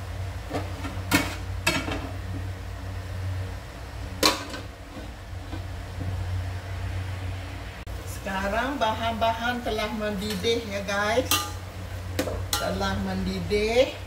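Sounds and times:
metal lid clinking on pot: 11.2s - 11.6s.

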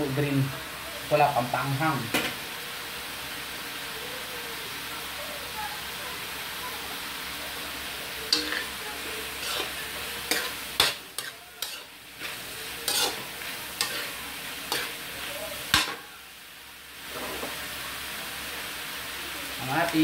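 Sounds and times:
food sizzling: 0.0s - 20.0s
metal spatula clanking on wok: 8.3s - 8.8s, 9.4s - 15.0s, 15.6s - 16.0s.

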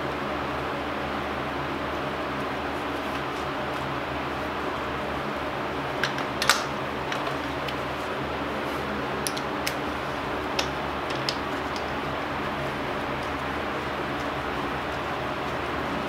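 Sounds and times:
steady background hum: 0.0s - 16.0s
metallic tool clicks and taps: 9.2s - 9.8s, 10.6s - 12.0s.

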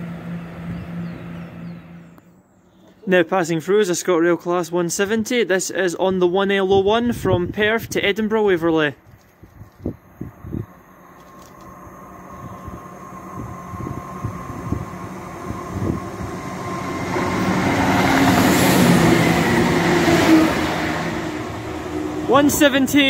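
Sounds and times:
diesel train passing: 0.0s - 2.3s, 10.0s - 23.0s.

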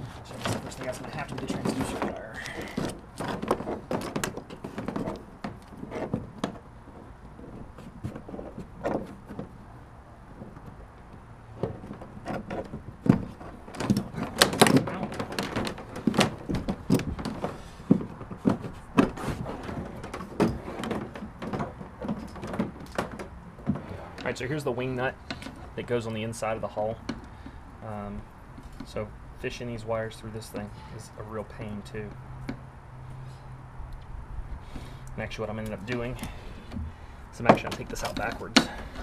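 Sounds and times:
cables knocking and rubbing on plastic: 0.0s - 24.6s, 35.5s - 39.0s.

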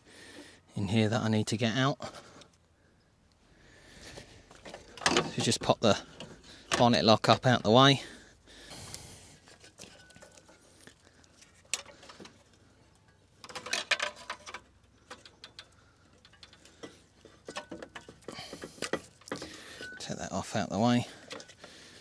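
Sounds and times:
hand tools clicking and rattling: 9.5s - 20.2s, 21.1s - 22.0s.

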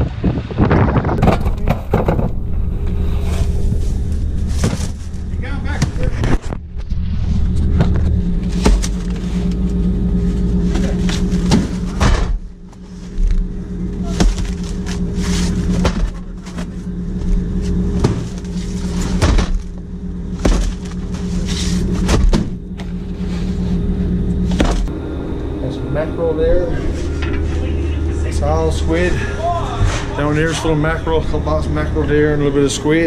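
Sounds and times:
boat engine drone: 0.0s - 33.0s
boxes thumping on metal boards: 11.4s - 12.4s, 14.1s - 14.9s, 15.7s - 16.8s, 18.0s - 19.8s, 20.4s - 21.1s, 22.0s - 22.6s, 24.6s - 24.9s.

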